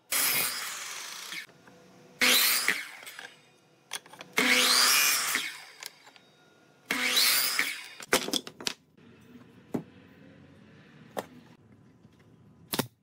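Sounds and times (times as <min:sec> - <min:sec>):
miter saw cutting wood: 0:00.1 - 0:01.5, 0:02.2 - 0:03.4, 0:04.4 - 0:06.0, 0:06.9 - 0:08.0.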